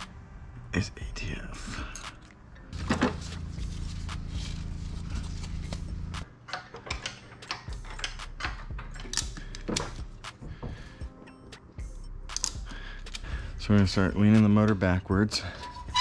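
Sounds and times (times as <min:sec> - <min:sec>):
steady low hum: 0:00.0 - 0:06.3
ratchet strap clicking: 0:12.3 - 0:13.2.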